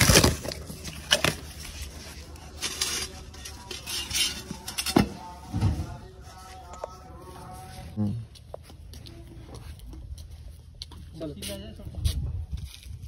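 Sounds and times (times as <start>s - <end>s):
cardboard rustling and scraping: 0.0s - 3.4s.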